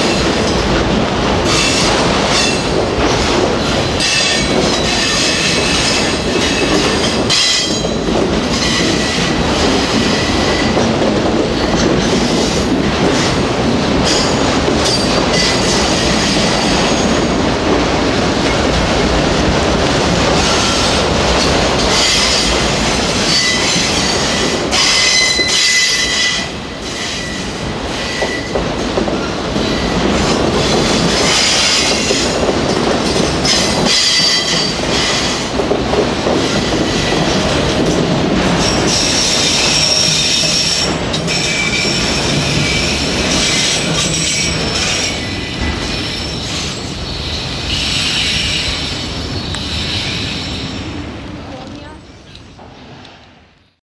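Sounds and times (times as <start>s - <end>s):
train wheels rumbling on rail: 0.0s - 53.8s
high wheel squeal: 38.9s - 50.8s.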